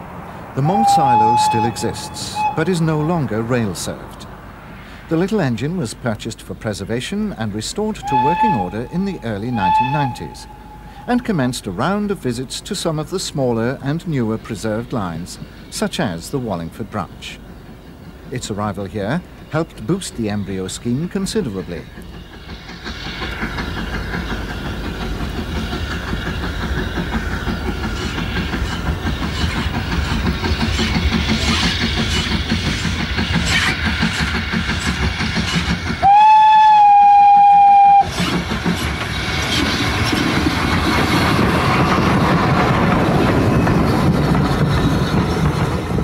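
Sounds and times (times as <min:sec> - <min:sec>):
steam engine rumble: 0:00.0 - 0:46.0
steam whistle blast: 0:00.6 - 0:02.8, 0:08.0 - 0:11.0, 0:36.0 - 0:38.1.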